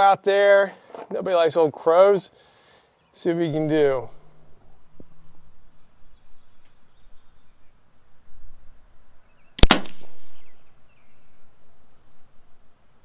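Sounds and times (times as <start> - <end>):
air pistol shot: 9.6 - 10.5.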